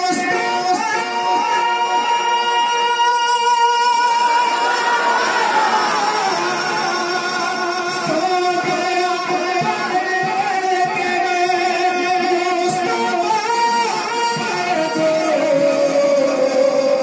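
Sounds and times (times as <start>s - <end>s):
man singing into a microphone: 0.0s - 17.0s.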